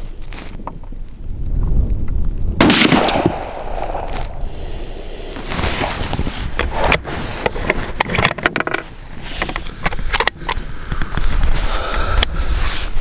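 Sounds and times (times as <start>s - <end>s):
low wind rumble on microphone: 0.0s - 13.0s
rifle gear handling clicks and scrapes: 3.9s - 13.0s.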